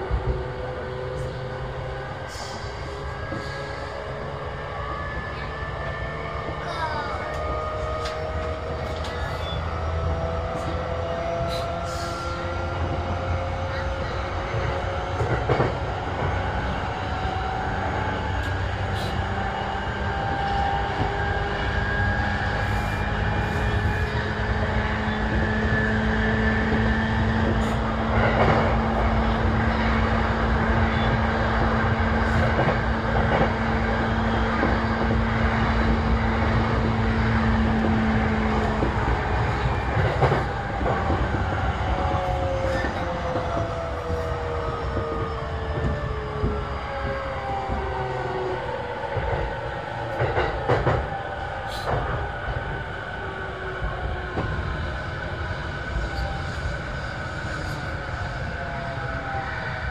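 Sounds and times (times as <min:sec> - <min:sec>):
train wheels rumbling on rail: 0:00.0 - 0:59.9.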